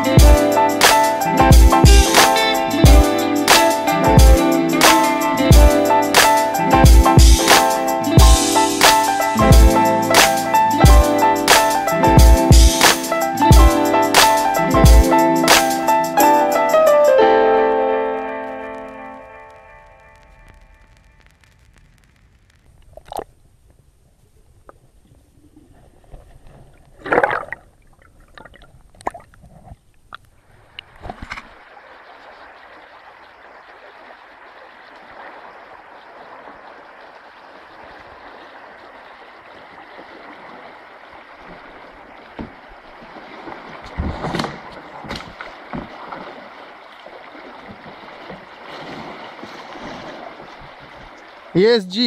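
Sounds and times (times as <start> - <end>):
river current rushing: 31.5 - 52.0.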